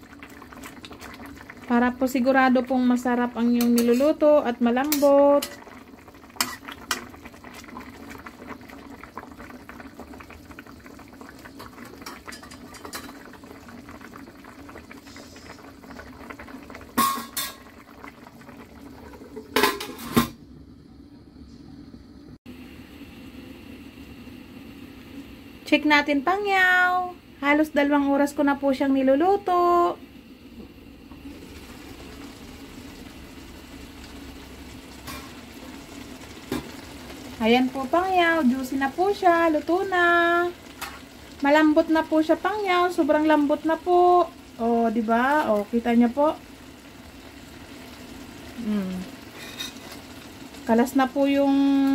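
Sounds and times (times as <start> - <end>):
food bubbling in a wok: 0.0 - 20.0, 29.4 - 51.9.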